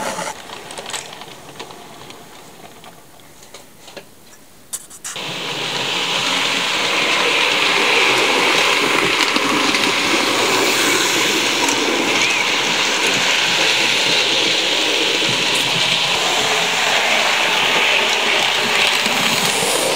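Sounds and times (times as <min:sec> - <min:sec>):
model train motor whirring: 0:05.0 - 0:19.9.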